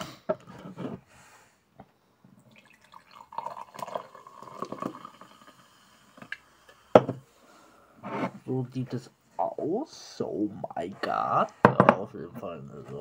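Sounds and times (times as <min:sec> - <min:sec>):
drink pouring into a glass: 0:02.4 - 0:06.5.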